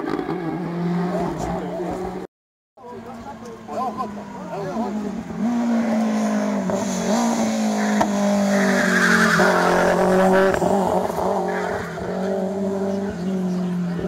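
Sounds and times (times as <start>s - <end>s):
car engine at high revs: 3.0s - 14.0s
tyre squeal: 8.4s - 10.6s.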